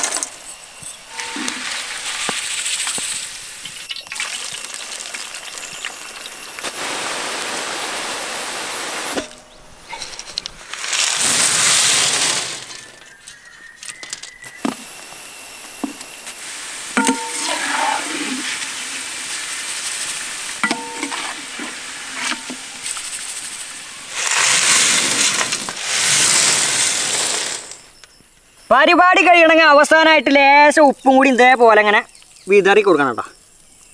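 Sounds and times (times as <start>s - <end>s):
chips sizzling in hot oil: 1.1s - 9.2s, 10.6s - 13.4s, 16.3s - 27.9s
fried chips clattering out: 9.9s - 14.6s, 17.0s - 27.8s
metal ladle clinking on wok: 20.6s - 22.6s.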